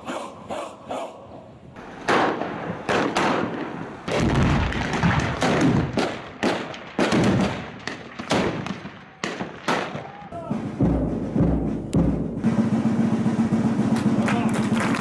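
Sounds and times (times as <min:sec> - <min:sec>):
explosive blasts: 0:01.9 - 0:10.1
gunshots: 0:02.0 - 0:10.2.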